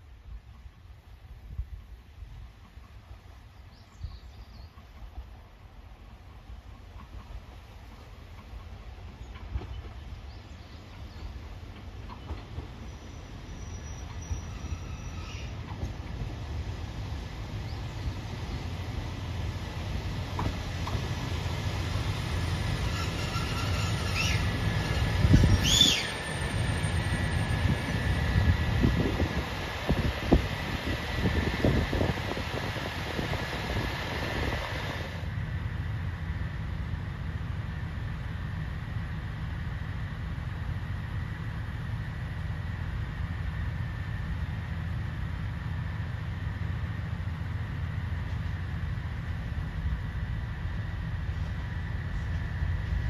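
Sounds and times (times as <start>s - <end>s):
train engine and wheel rumble: 0.0s - 53.0s
high brake squeals: 12.8s - 15.6s, 22.3s - 28.3s.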